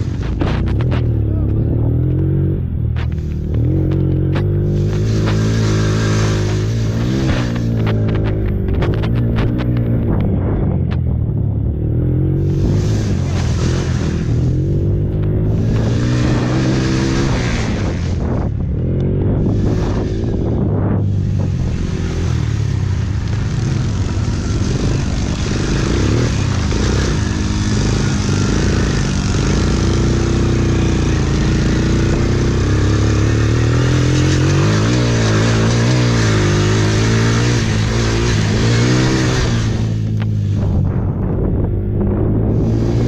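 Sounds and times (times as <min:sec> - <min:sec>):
quad engine revving: 0:00.0 - 0:43.0.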